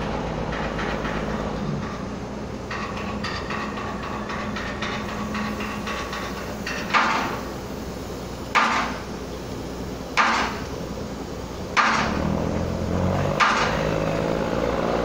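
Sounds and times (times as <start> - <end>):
steady low hum: 0.0 - 15.0
heavy hammer blows: 11.8 - 14.9.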